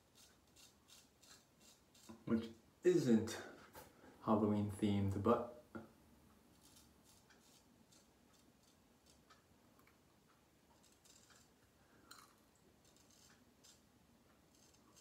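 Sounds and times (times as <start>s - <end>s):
razor scraping stubble: 0.0s - 2.6s, 6.5s - 9.4s, 10.7s - 11.5s, 12.2s - 13.9s, 14.5s - 15.0s.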